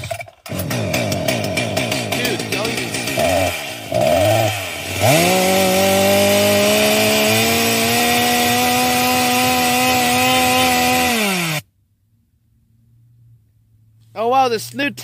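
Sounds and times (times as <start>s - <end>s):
chainsaw running at high revs: 0.0s - 11.6s.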